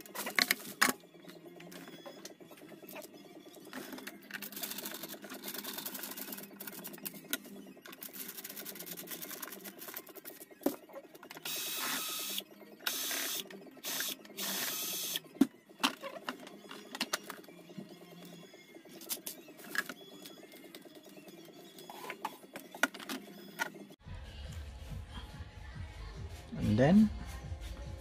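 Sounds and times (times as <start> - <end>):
cordless drill spinning: 11.4 - 15.2.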